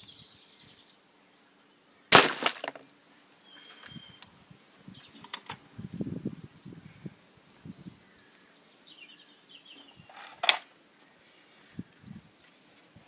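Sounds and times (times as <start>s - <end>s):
bird chirping: 0.0s - 1.8s, 3.4s - 5.4s, 7.5s - 10.4s.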